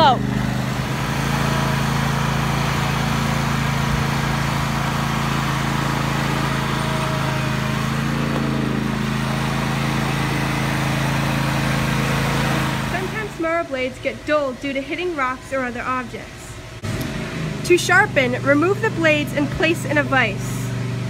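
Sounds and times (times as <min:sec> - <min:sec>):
riding mower engine running: 0:00.0 - 0:14.0, 0:16.7 - 0:21.0.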